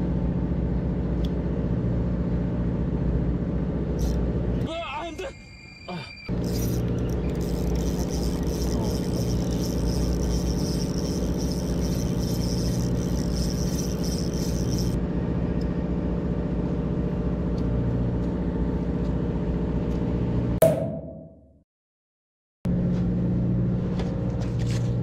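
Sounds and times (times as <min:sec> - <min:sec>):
boat engine humming: 0:06.3 - 0:15.2.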